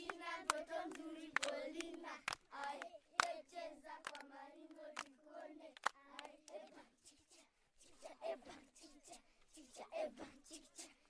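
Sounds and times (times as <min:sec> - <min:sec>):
sharp hand claps: 0:00.0 - 0:03.4, 0:04.0 - 0:04.3, 0:05.0 - 0:06.7
high voices singing: 0:00.0 - 0:11.0.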